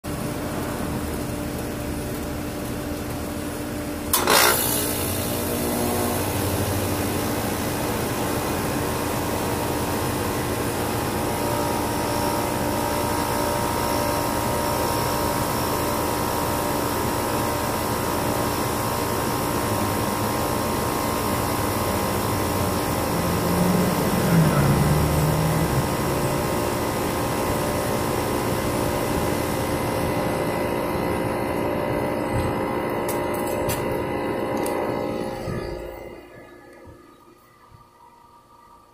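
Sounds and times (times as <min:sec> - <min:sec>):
air conditioner humming: 0:00.1 - 0:38.9.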